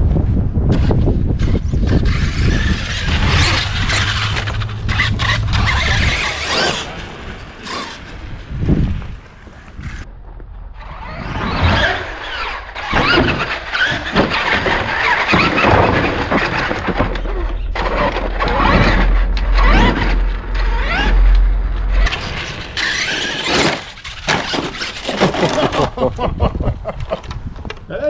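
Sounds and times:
rc truck motor whining: 0:00.7 - 0:10.1, 0:10.7 - 0:25.9
tyres scrubbing on asphalt: 0:01.4 - 0:10.0, 0:10.8 - 0:26.1.

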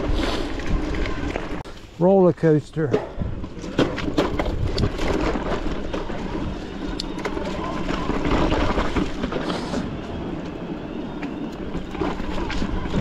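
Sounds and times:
tyre and riding noise: 0:00.0 - 0:13.0
bike rattles and knocks: 0:02.6 - 0:09.9, 0:11.2 - 0:13.0.

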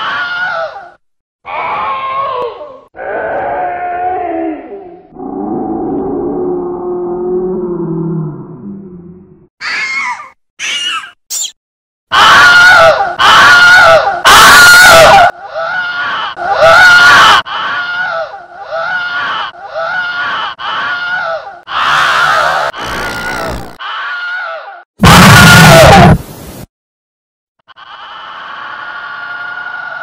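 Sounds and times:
altered scream sound effect: 0:20.7 - 0:26.2.

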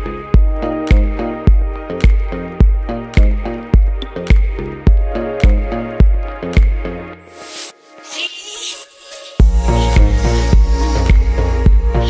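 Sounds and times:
heavy kick drum: 0:00.0 - 0:06.8, 0:09.4 - 0:12.0
synth chords: 0:00.0 - 0:08.1, 0:09.4 - 0:12.0
dance music: 0:00.0 - 0:12.0.

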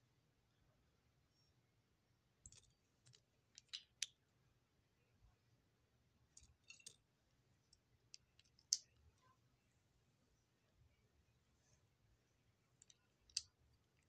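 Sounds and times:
plastic toy bricks clicking: 0:02.5 - 0:04.2, 0:08.2 - 0:09.0, 0:12.8 - 0:14.0.

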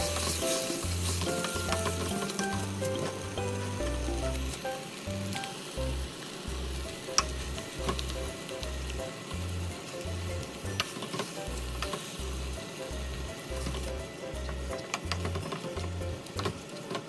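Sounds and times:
ladle stirring tomatoes: 0:00.0 - 0:04.5
sauce sizzling in a pot: 0:00.0 - 0:16.9.

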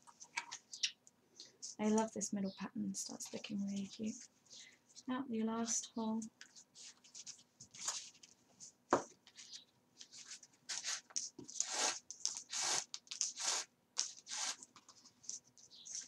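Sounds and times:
paper rustling: 0:00.0 - 0:01.0, 0:05.6 - 0:16.0
thread rasping through paper: 0:09.3 - 0:16.0.

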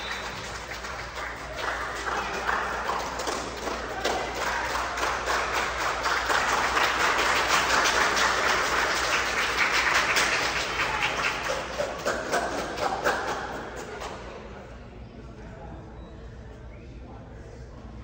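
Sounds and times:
crowd clapping: 0:00.0 - 0:14.3.

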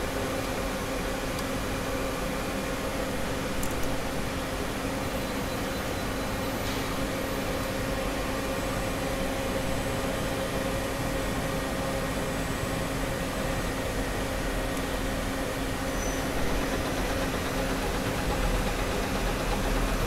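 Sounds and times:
machine hum: 0:07.4 - 0:20.0.

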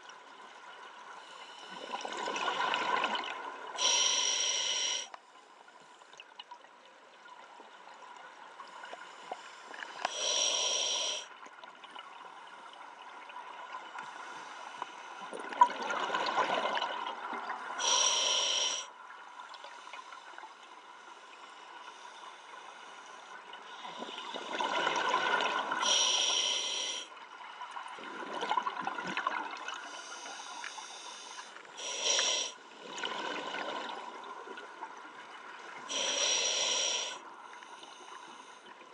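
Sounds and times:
regulator hissing inhales: 0:03.8 - 0:05.2, 0:09.3 - 0:11.3, 0:17.8 - 0:18.9, 0:25.8 - 0:27.1, 0:29.9 - 0:32.6, 0:35.9 - 0:38.6.

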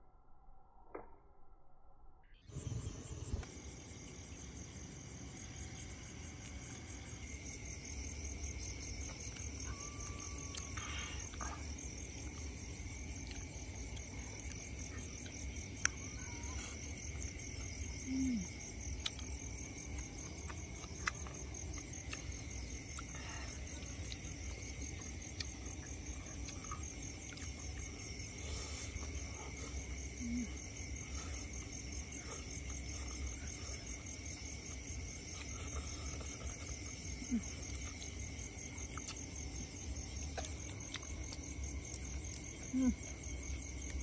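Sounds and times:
crickets and insects trilling: 0:02.5 - 0:44.0.

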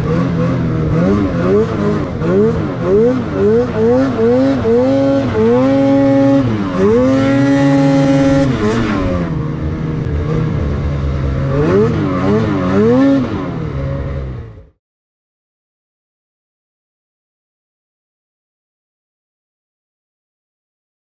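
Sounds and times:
snowmobile engine revving: 0:00.0 - 0:14.8.

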